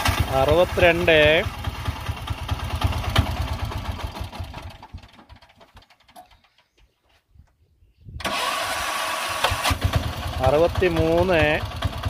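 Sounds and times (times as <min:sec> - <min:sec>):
auto-rickshaw engine running: 0:00.0 - 0:06.2, 0:08.2 - 0:12.0
electric starter cranking: 0:08.2 - 0:10.4.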